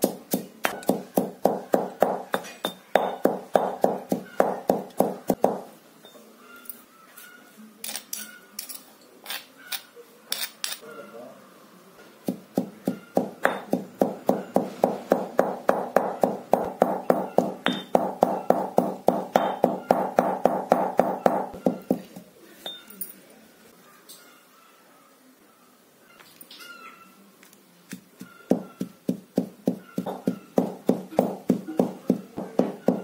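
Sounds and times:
pestle pounding in mortar: 0:00.0 - 0:05.7, 0:12.2 - 0:22.3, 0:27.9 - 0:33.0.

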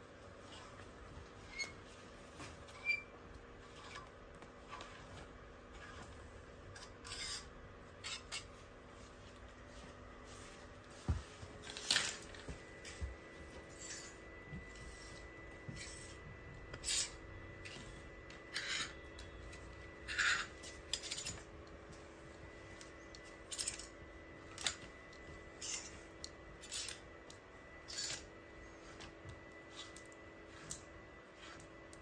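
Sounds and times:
hangers scraping on metal rail: 0:06.7 - 0:08.5, 0:18.5 - 0:19.0, 0:20.0 - 0:21.4.

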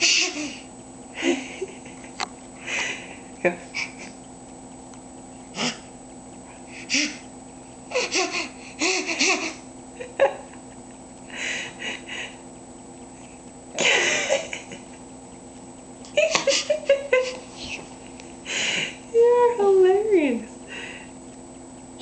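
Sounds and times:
baby laughing: 0:07.9 - 0:09.7, 0:16.2 - 0:17.4.

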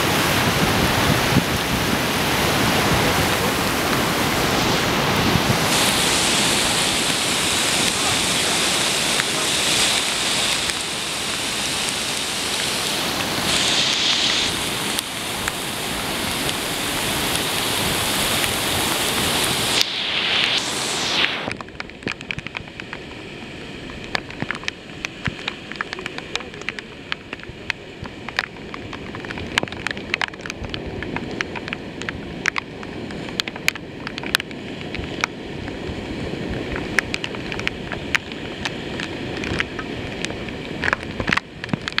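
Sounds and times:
river rushing: 0:00.0 - 0:42.0
rain ticking: 0:01.0 - 0:42.0.

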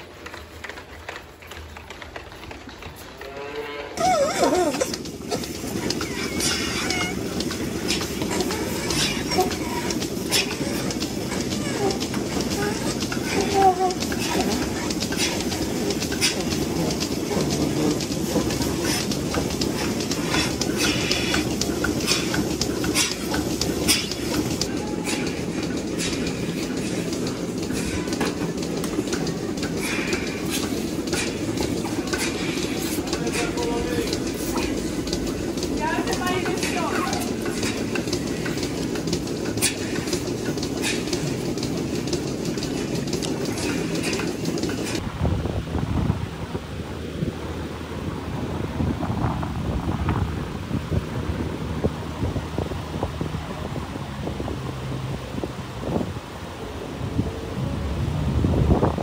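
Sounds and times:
milking machine drone: 0:02.9 - 0:45.0.

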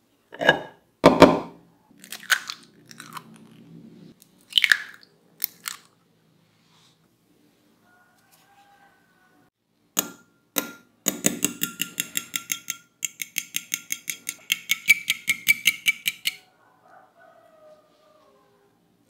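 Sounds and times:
utensil beating eggs in glass bowl: 0:11.1 - 0:16.4.

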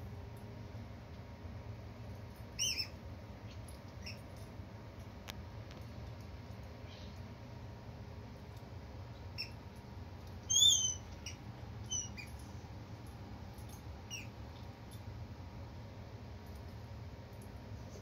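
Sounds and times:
kitten squeaking: 0:02.6 - 0:03.0, 0:10.4 - 0:12.4.

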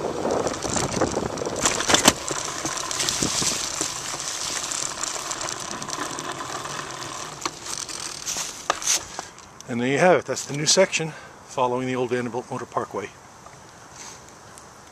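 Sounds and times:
bicycle frame rattle: 0:00.0 - 0:09.6
bicycle tyre hiss on asphalt: 0:13.9 - 0:14.3.

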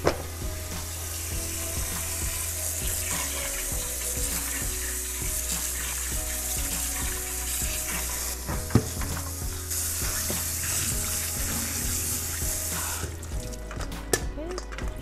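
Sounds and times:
tap water running into a sink: 0:00.0 - 0:15.0
colander knocking: 0:08.4 - 0:09.3.

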